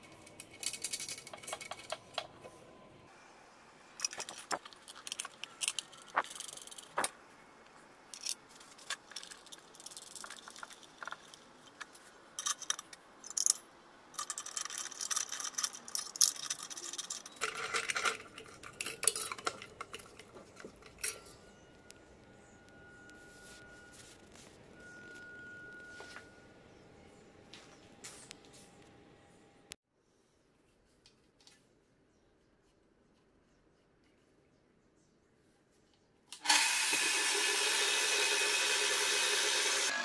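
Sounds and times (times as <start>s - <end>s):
metal parts clinking on a pan: 14.2s - 21.5s.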